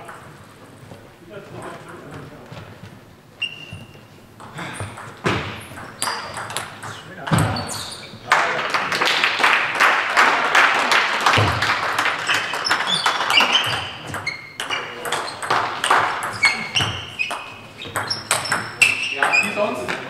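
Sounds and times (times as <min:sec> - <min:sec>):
shoes squeaking on floor: 0:00.6 - 0:08.3, 0:12.2 - 0:20.0
footwork thumps: 0:02.1 - 0:06.0.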